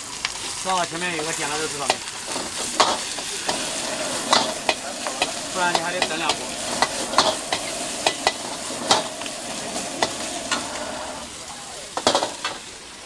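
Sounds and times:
vegetables sizzling in a wok: 0:00.0 - 0:13.0
ladle clanking against wok: 0:01.8 - 0:11.2
metal ladle scraping wok: 0:01.8 - 0:11.4.

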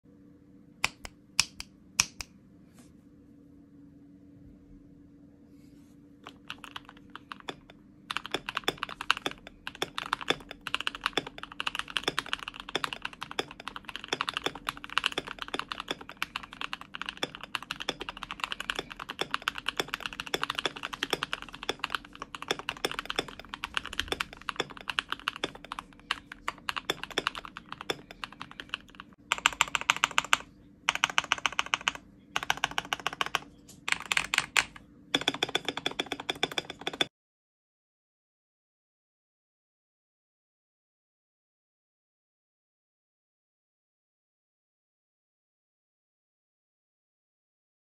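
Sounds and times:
mechanical keyboard typing: 0:06.2 - 0:37.1.

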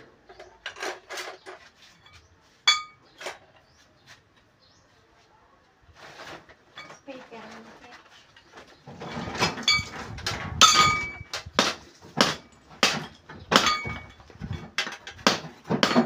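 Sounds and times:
sharp metallic knocks and clinks: 0:00.3 - 0:03.4, 0:09.2 - 0:16.0.

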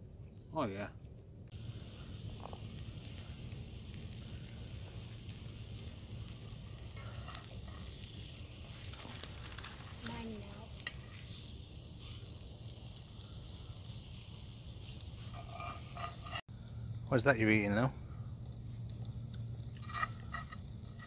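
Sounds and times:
meat sizzling in a frying pan: 0:01.5 - 0:16.5
knife scraping in a pan: 0:15.2 - 0:16.4, 0:19.8 - 0:21.0.

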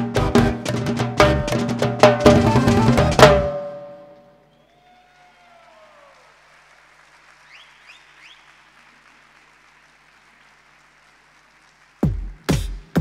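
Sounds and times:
faint audience applause: 0:04.5 - 0:13.0.

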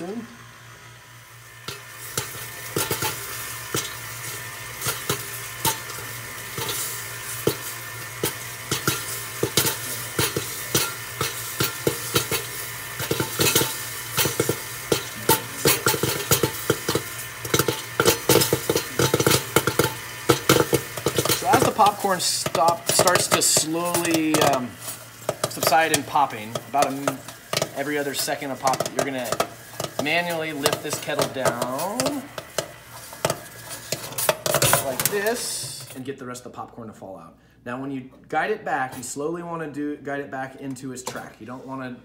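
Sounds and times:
popcorn popping: 0:00.0 - 0:36.0.

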